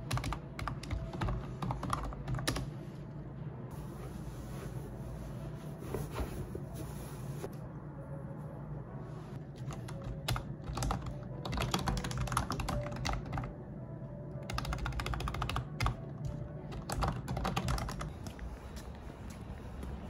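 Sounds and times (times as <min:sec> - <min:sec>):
computer keyboard typing: 0:00.0 - 0:02.7, 0:09.6 - 0:13.5, 0:14.4 - 0:18.2.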